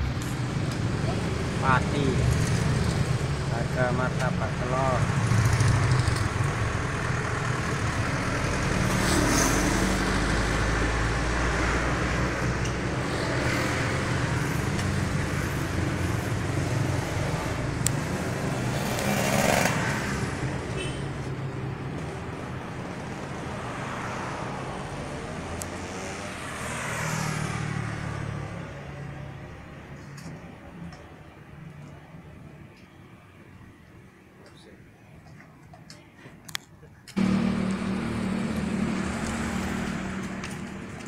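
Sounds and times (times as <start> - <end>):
vehicles passing by: 0.0 - 41.0
low engine hum: 37.2 - 41.0.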